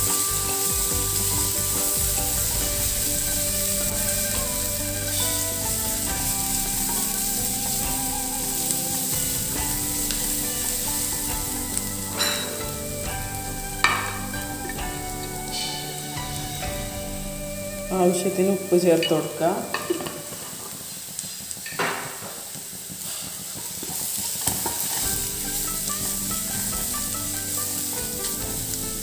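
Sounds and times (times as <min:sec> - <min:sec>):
onions sizzling in hot oil: 0:00.0 - 0:29.0
spatula stirring in pan: 0:22.4 - 0:29.0.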